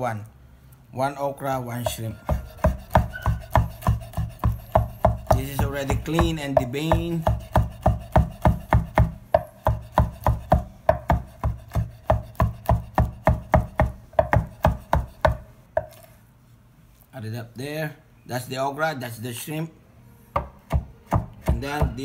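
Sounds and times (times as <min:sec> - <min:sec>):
knife chopping on wooden board: 0:01.8 - 0:16.1, 0:20.4 - 0:22.0.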